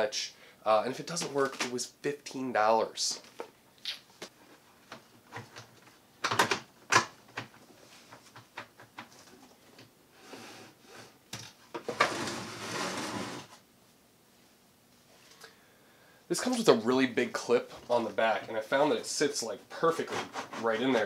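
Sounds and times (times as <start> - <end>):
hard plastic clicking and knocking: 5.3 - 7.6.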